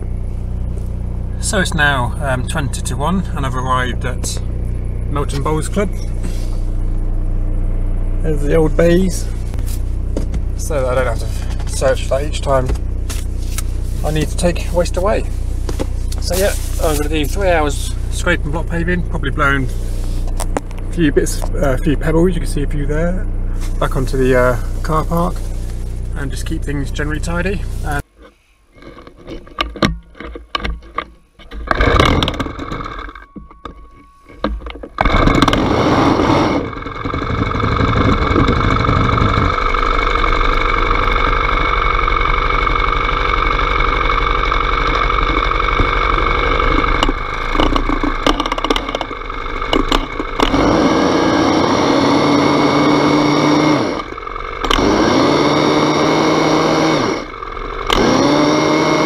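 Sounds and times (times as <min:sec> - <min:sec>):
small petrol engine running: 0:00.0 - 0:28.1, 0:28.8 - 0:59.0
brush scrubbing paving: 0:13.1 - 0:17.4
engine starting knocks and bursts: 0:28.8 - 0:59.0.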